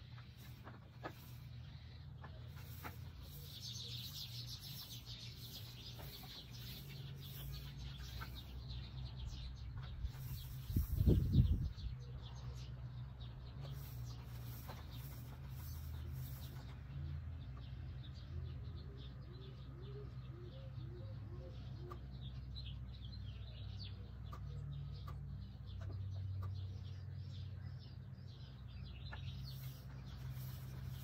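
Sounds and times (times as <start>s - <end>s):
small birds chirping: 0.0s - 31.0s
wind rumble on microphone: 9.7s - 12.0s.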